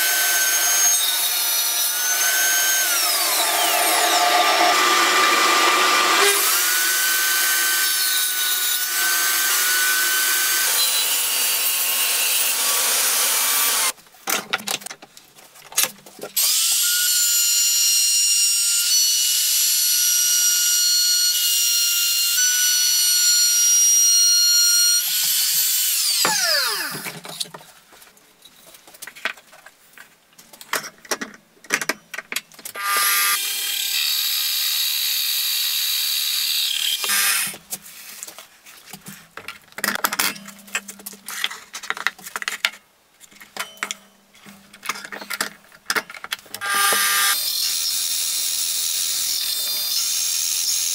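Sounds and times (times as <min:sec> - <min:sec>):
trim router whining: 0:00.0 - 0:13.9, 0:26.1 - 0:27.1, 0:46.6 - 0:48.2
power tool motor running: 0:02.1 - 0:07.9, 0:46.6 - 0:47.4.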